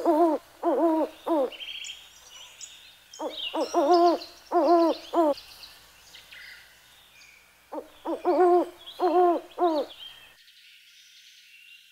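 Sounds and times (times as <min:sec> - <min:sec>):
bird hooting: 0:00.0 - 0:01.6, 0:03.2 - 0:05.4, 0:07.7 - 0:10.0
small birds chirping: 0:00.0 - 0:11.9.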